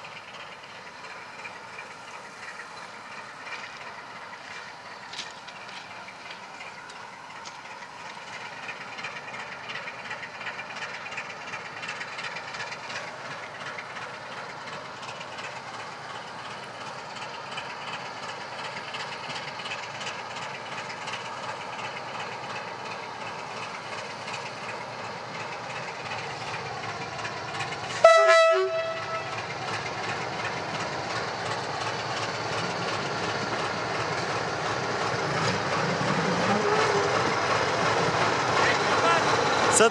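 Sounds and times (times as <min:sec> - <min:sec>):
diesel locomotive engine running: 0:00.0 - 0:39.9
train wheels clicking on rail joints: 0:00.0 - 0:39.9
locomotive horn blast: 0:28.0 - 0:29.4.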